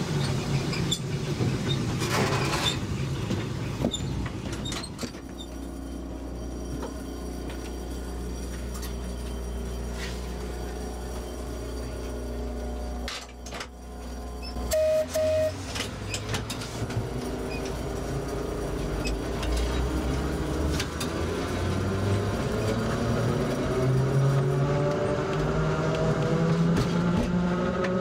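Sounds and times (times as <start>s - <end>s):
electric tram motor whine: 5.2s - 26.6s
short beeps: 14.4s - 15.6s.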